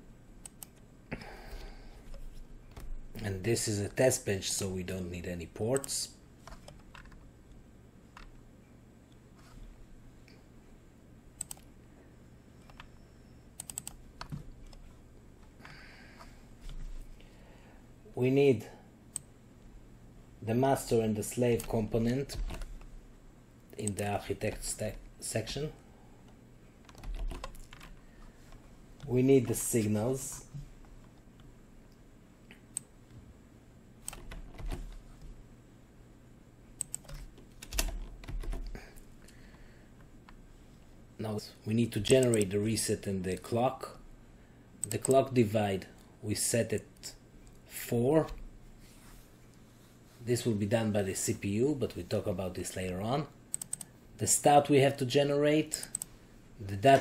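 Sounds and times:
faint steady hum: 0:00.0 - 0:57.0
computer keys clicking: 0:00.4 - 0:00.8, 0:05.7 - 0:07.2, 0:11.4 - 0:11.7, 0:13.6 - 0:14.8, 0:26.8 - 0:28.0, 0:34.0 - 0:35.0, 0:36.8 - 0:38.8, 0:42.1 - 0:42.5, 0:44.8 - 0:45.2, 0:53.5 - 0:53.9, 0:55.8 - 0:56.1.

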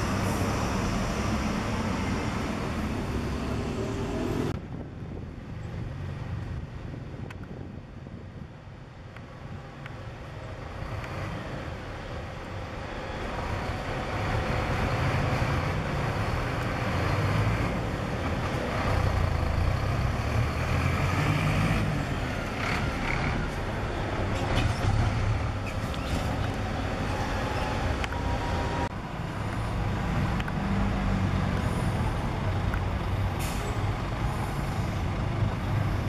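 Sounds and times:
bus engine running: 0:09.3 - 0:36.0
air brake hisses: 0:33.4 - 0:34.9.

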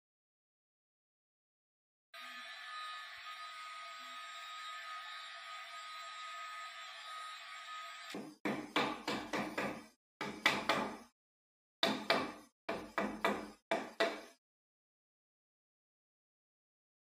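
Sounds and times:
hammer knocking on wooden mould: 0:08.2 - 0:11.0, 0:11.8 - 0:14.3.

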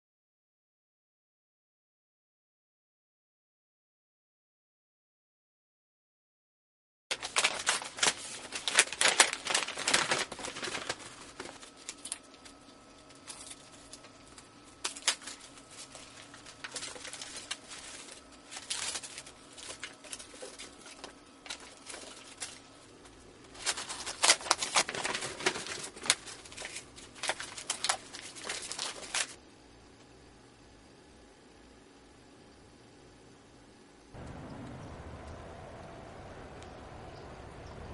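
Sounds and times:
rapid clicking and crinkling: 0:07.1 - 0:29.4.

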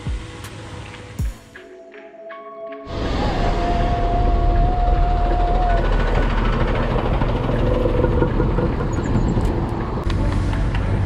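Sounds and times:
traffic engine rumble and road noise: 0:04.6 - 0:11.0.

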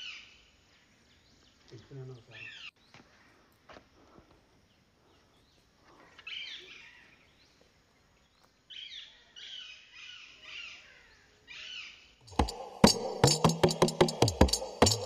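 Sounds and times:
loud music with percussive beats: 0:12.3 - 0:15.0.

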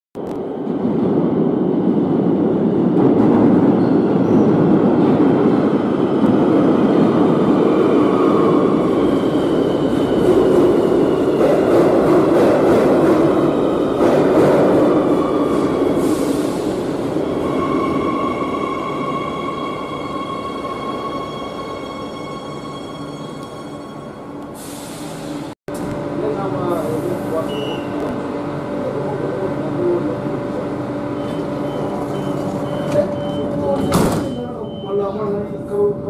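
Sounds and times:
train wheels rumbling on rail: 0:00.2 - 0:21.4.

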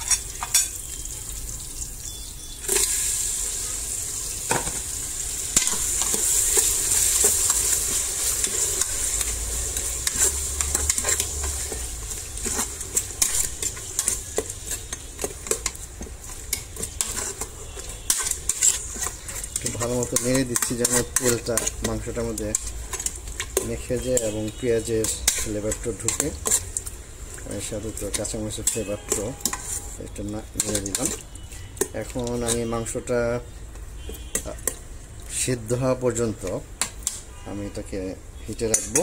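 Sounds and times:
meat sizzling in hot oil: 0:00.0 - 0:31.9
utensil scraping a pot: 0:05.6 - 0:32.9.

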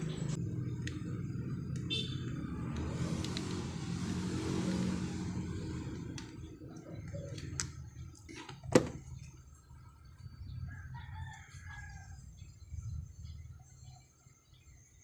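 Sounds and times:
passing traffic: 0:00.0 - 0:10.8.

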